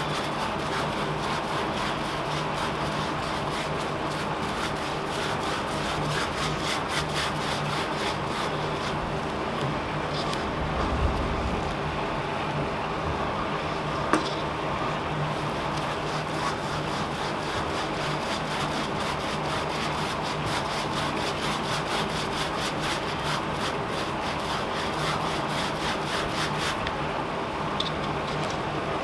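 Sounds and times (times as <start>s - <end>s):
foam brush rubbing strokes: 0.0s - 9.4s, 15.1s - 26.9s
steady background hum: 0.0s - 29.0s.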